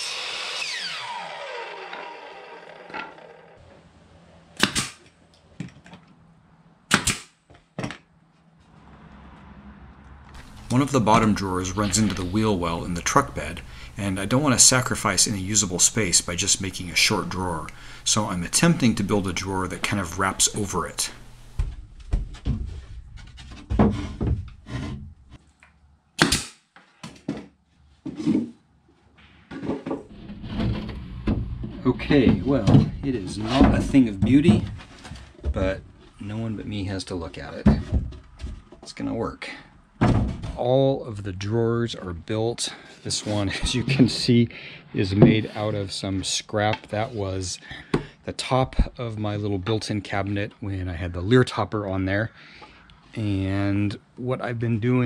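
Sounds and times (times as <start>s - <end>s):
nail gun firing into wood: 4.6s - 5.1s, 6.9s - 7.4s, 26.2s - 26.7s.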